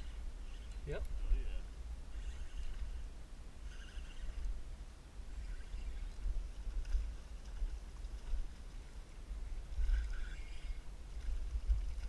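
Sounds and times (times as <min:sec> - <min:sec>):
wind buffeting microphone: 0:04.1 - 0:12.0.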